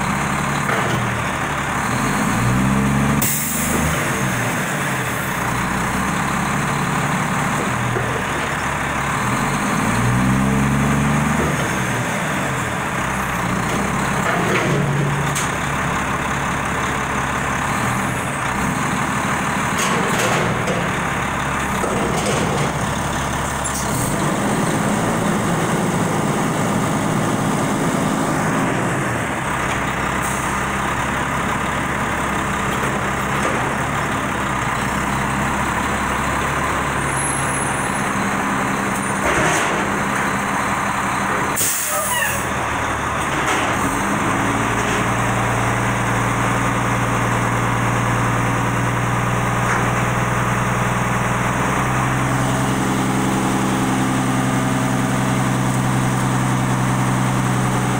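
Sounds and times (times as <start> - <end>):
diesel engine running: 0.0 - 57.9
air brakes hissing: 3.2 - 3.8, 41.6 - 42.5.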